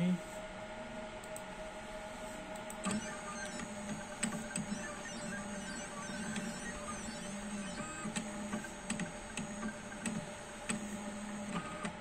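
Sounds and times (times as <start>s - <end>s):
steady hum: 0.0s - 12.0s
stepper motors whirring: 2.8s - 11.9s.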